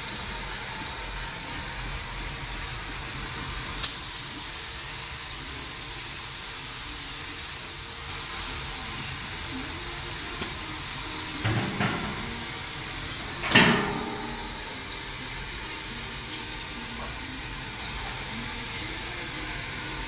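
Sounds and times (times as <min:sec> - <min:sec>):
steady hiss: 0:00.0 - 0:20.0.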